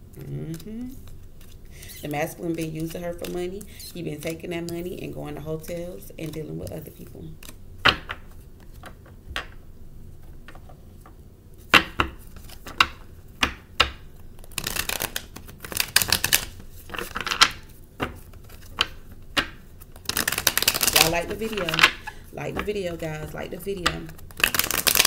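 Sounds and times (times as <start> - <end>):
cards rustling while shuffled: 0.1 - 9.6, 10.2 - 25.0
cards snapping and tapping: 5.8 - 6.4, 7.4 - 9.6, 11.7 - 22.7, 23.8 - 25.0.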